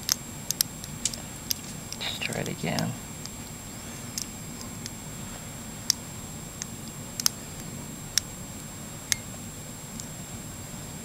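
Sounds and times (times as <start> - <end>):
lock pins clicking: 0.0 - 2.1, 2.7 - 5.0, 6.6 - 8.3.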